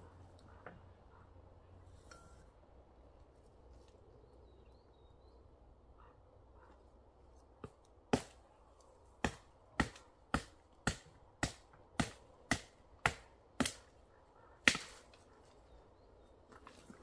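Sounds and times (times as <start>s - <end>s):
hand tool striking wood: 9.2s - 13.8s.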